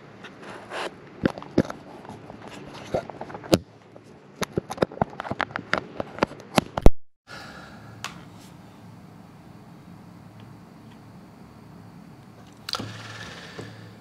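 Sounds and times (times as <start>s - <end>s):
faint steady hum: 7.3s - 14.0s.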